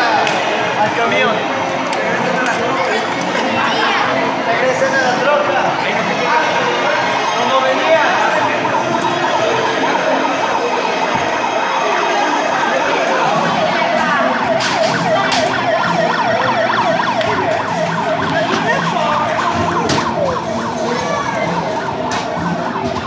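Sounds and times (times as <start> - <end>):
toy fire truck siren: 7.1 - 23.0.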